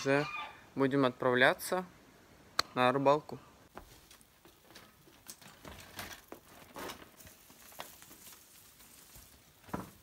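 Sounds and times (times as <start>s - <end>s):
bicycle clicks and knocks: 4.7s - 8.1s.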